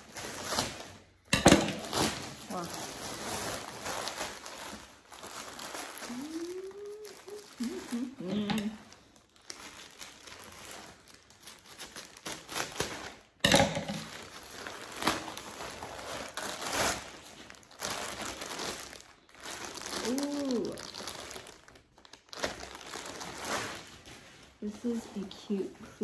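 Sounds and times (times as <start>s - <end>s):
sharp plastic crackle: 0.0s - 25.7s
plastic bag rustling: 0.0s - 26.0s
plastic mailer bag crinkling: 0.0s - 26.0s.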